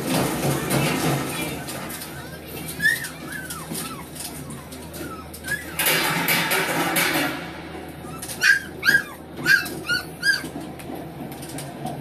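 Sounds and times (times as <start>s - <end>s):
puppies whimpering: 2.1s - 6.2s, 7.9s - 10.7s.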